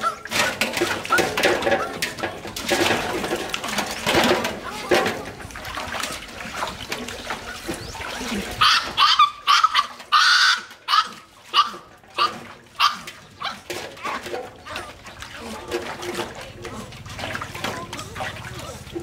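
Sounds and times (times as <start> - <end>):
water splashing in a metal basin: 0.0 - 19.0
puppy whining and yelping: 8.6 - 13.6.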